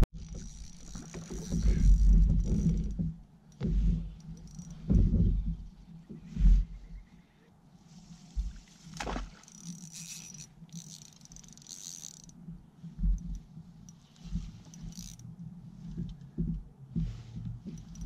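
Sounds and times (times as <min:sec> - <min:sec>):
dull low knocks: 0:01.2 - 0:07.0, 0:14.3 - 0:18.0
spinning reel whirring: 0:09.5 - 0:12.4, 0:13.9 - 0:15.2.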